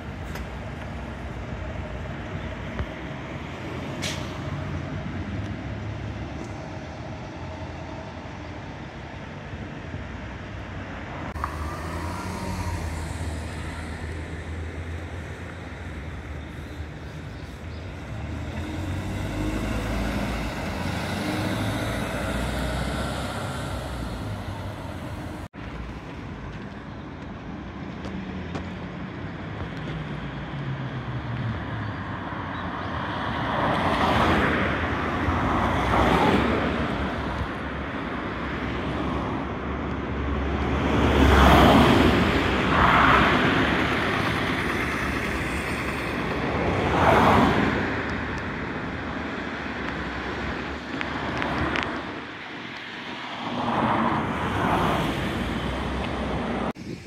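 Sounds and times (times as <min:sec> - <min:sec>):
bus engine running: 0:00.0 - 0:29.8
passing road traffic: 0:00.0 - 0:57.0.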